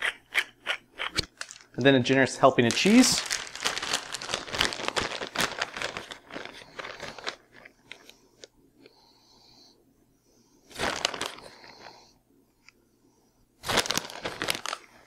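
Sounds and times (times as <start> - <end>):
plastic bag rustling and crackling: 1.4 - 8.1, 10.7 - 11.8, 13.6 - 15.0.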